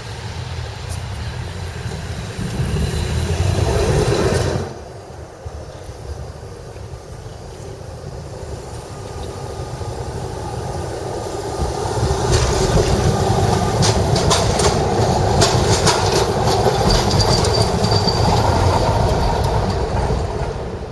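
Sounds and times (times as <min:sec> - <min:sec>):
electric tram rumbling past: 0:00.0 - 0:20.9
tram wheels clicking on track: 0:00.0 - 0:20.9
high wheel squeal: 0:16.0 - 0:19.8.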